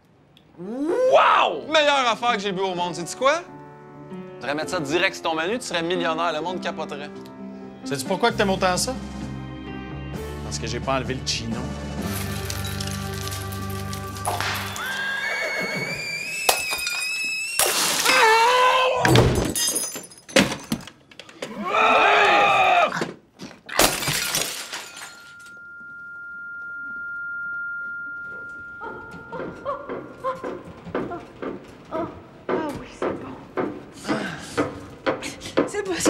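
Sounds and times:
thuds crashes and breaking: 12.1s - 15.0s, 23.7s - 25.2s
drawn-out cry: 14.7s - 16.4s, 21.5s - 23.0s
steady high tone: 25.2s - 31.0s.

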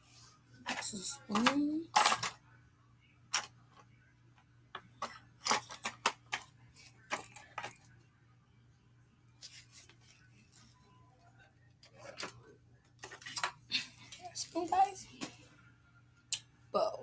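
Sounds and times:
small objects clicking and rattling: 0.7s - 2.4s, 5.0s - 7.8s.

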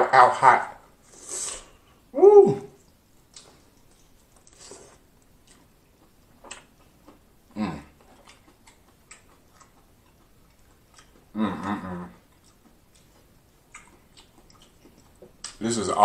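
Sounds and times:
short vocal sound: 1.3s - 2.8s, 7.5s - 7.9s, 11.3s - 12.2s
wet chewing clicks and smacks: 2.8s - 15.6s.

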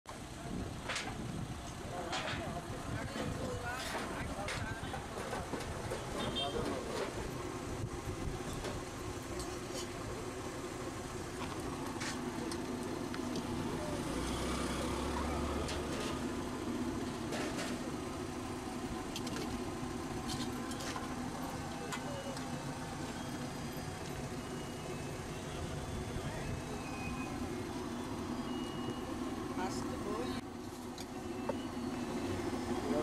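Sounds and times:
traffic hum: 0.1s - 33.0s
indistinct voices: 11.7s - 30.4s.

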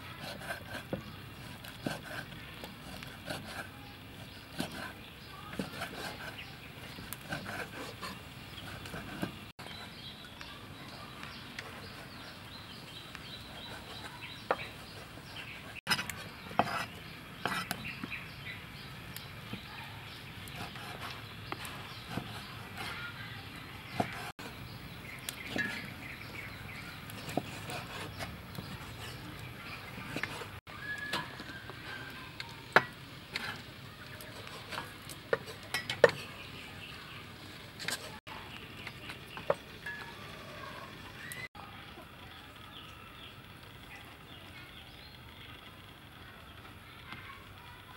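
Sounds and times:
small birds calling: 0.0s - 47.9s
cleavers chopping meat on wood: 20.5s - 23.0s, 23.9s - 24.4s.

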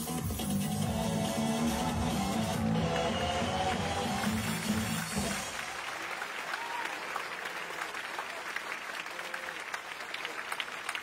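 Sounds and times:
music: 0.0s - 5.7s
audience applauding: 2.6s - 11.0s.

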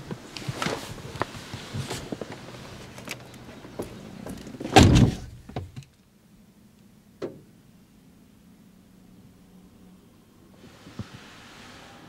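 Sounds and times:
car door shutting: 4.6s - 5.8s.

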